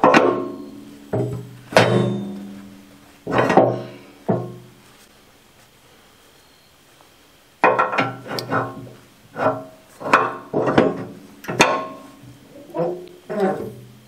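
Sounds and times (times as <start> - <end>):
heavy steel parts clanking: 0.0 - 4.7, 7.6 - 13.8.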